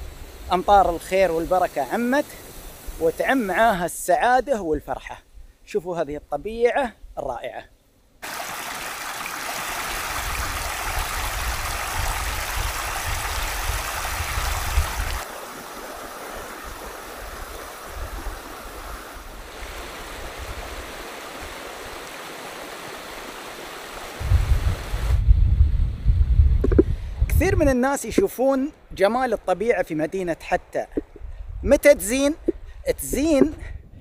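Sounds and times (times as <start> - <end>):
water rushing over rocks: 8.2 - 24.2.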